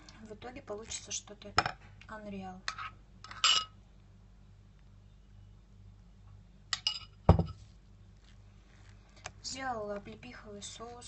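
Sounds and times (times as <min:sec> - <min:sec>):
faint low hum: 0:00.0 - 0:11.0
dull thump: 0:07.3 - 0:07.6.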